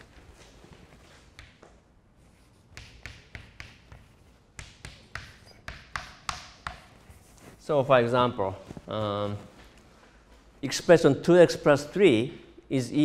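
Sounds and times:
chalk tapping on a blackboard: 0:01.3 - 0:07.5.

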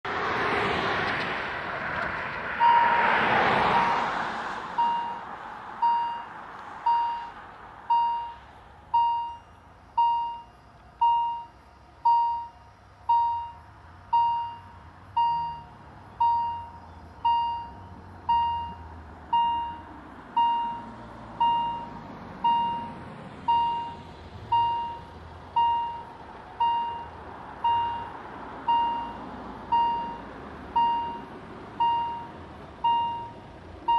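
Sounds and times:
car driving past: 0:00.1 - 0:07.9.

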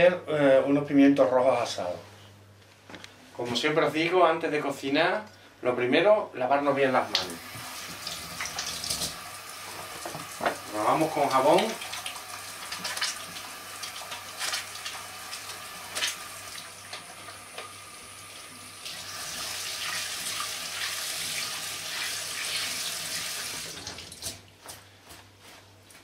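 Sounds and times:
tap running into steel sink: 0:07.9 - 0:10.7.

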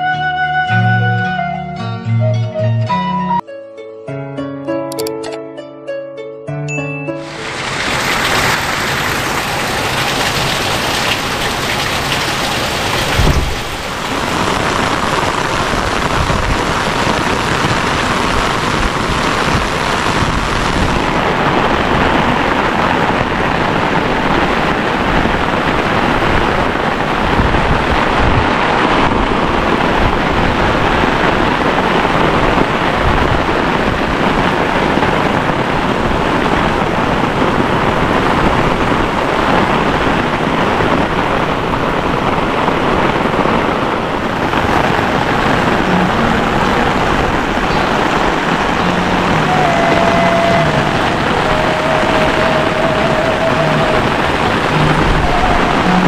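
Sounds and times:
heavy rain: 0:07.2 - 0:56.0
low thump: 0:13.1 - 0:13.9.

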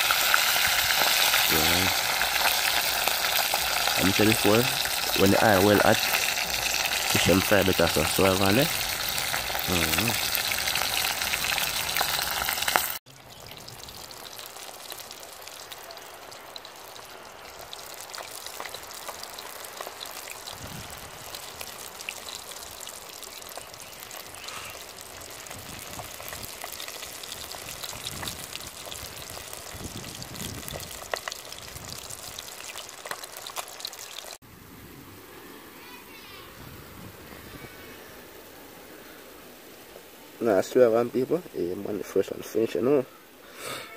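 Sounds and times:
fish sizzling in hot oil: 0:00.0 - 0:34.4.

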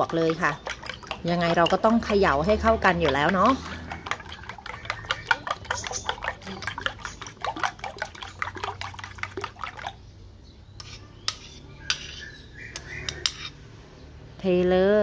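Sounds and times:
spoon clinking against bowl: 0:03.0 - 0:08.7.

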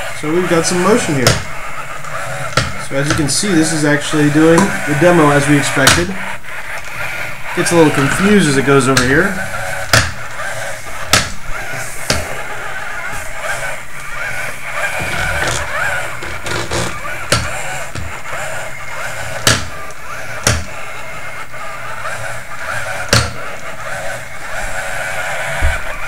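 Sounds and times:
robot motors whirring: 0:00.0 - 0:26.0
sharp knocks: 0:00.9 - 0:03.3, 0:09.5 - 0:12.5, 0:14.8 - 0:18.4, 0:19.1 - 0:19.8.

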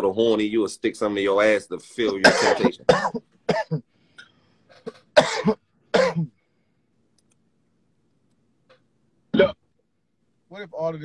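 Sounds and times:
man coughing: 0:02.1 - 0:03.9, 0:04.8 - 0:06.4.

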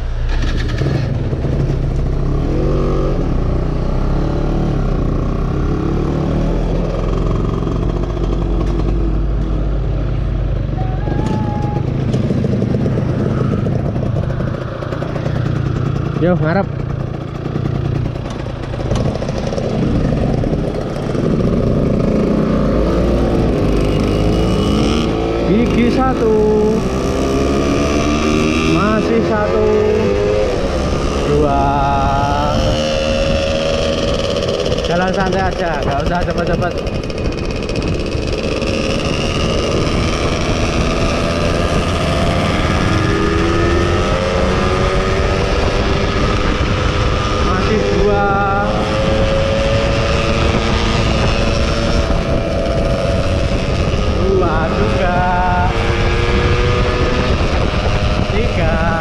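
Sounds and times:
motorcycle engine running: 0:00.0 - 0:59.0
wind rumble on microphone: 0:16.8 - 0:59.0.

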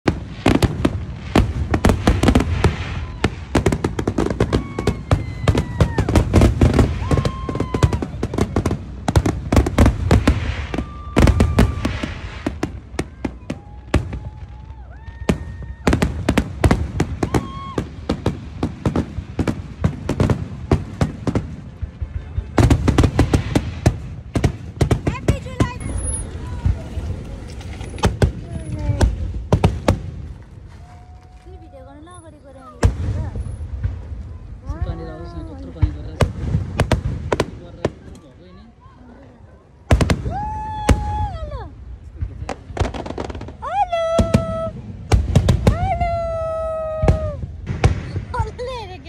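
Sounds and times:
deep fireworks booms: 0:00.0 - 0:38.2, 0:39.8 - 0:49.0
fireworks bangs and crackling: 0:00.0 - 0:38.9, 0:39.7 - 0:49.0
high fireworks whistles: 0:00.1 - 0:21.5, 0:22.1 - 0:27.0.

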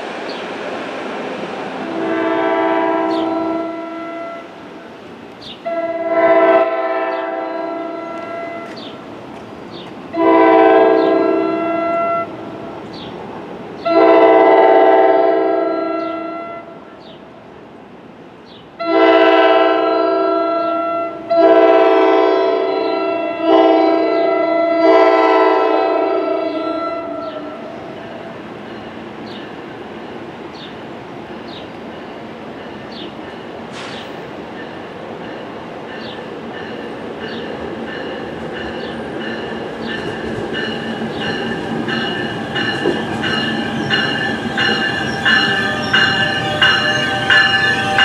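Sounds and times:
train horn blasts: 0:01.8 - 0:04.5, 0:05.6 - 0:08.9, 0:10.1 - 0:12.4, 0:13.8 - 0:17.0, 0:18.8 - 0:28.0, 0:42.5 - 0:48.0.

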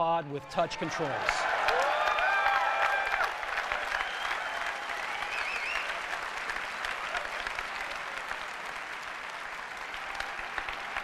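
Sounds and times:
audience applauding: 0:01.0 - 0:11.0.

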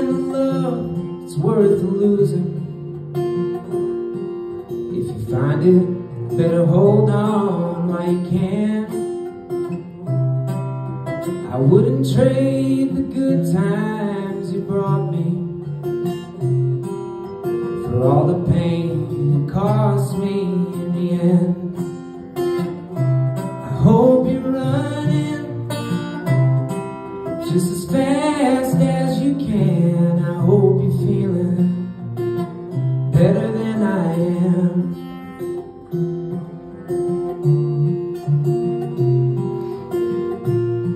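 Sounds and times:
man singing: 0:00.0 - 0:03.0, 0:04.7 - 0:09.5, 0:11.3 - 0:15.8, 0:17.6 - 0:22.1, 0:23.4 - 0:26.4, 0:27.1 - 0:35.7
acoustic guitar: 0:00.0 - 0:40.9.

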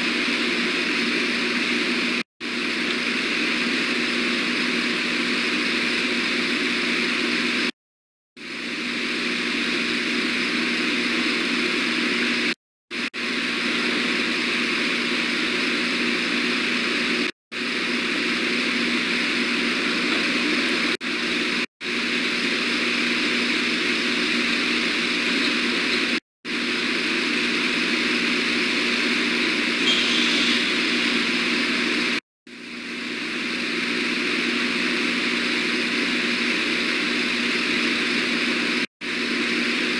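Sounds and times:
loud microphone hiss: 0:08.5 - 0:39.9.

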